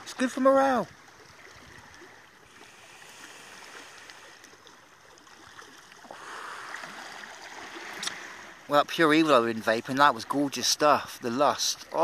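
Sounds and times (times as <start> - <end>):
long exhale of vapour: 2.5 - 4.5, 6.1 - 7.0.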